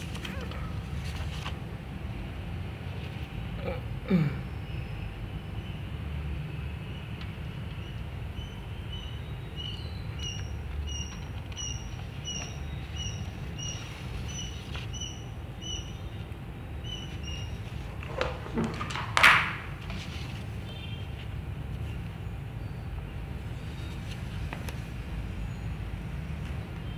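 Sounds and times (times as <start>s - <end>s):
paper crinkling: 0.0s - 1.8s.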